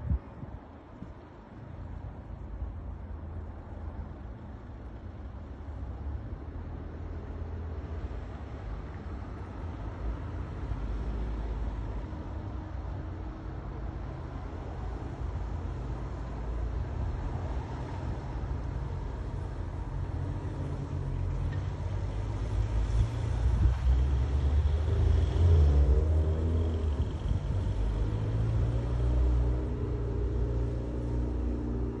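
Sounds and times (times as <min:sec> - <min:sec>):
vehicle engine rumble: 0:14.8 - 0:32.0.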